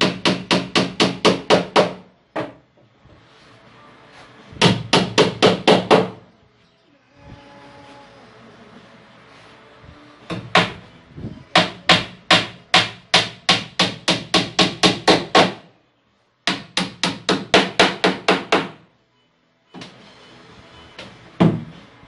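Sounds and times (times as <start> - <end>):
hammer nailing into plywood: 0.0 - 2.6, 4.6 - 6.2, 11.6 - 15.7, 16.5 - 18.8.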